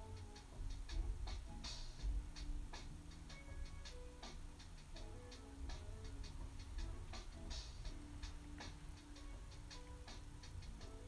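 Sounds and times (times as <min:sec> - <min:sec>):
laid-back beat music: 0:00.0 - 0:11.0.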